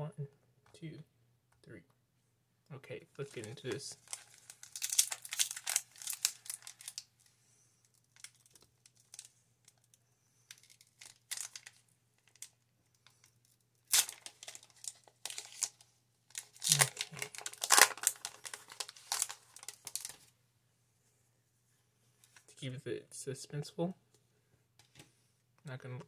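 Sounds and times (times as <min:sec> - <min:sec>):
foil wrapper crinkling: 0:03.3 - 0:07.1, 0:07.9 - 0:09.9, 0:10.5 - 0:12.5, 0:13.8 - 0:20.3
foil wrapper tearing: 0:04.0 - 0:07.0, 0:10.5 - 0:12.5, 0:13.8 - 0:20.2.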